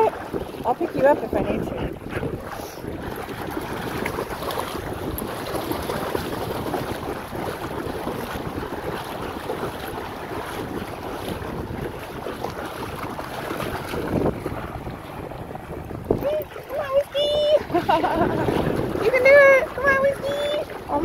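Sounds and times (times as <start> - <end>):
splashing through shallow water: 0.0 - 21.0
wind noise on microphone: 0.0 - 21.0.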